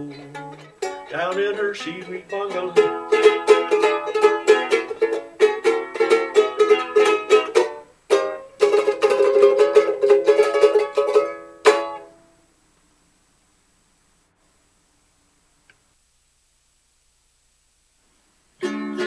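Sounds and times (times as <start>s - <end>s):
fast plucked-string instrumental: 0.0s - 12.2s, 18.6s - 19.0s.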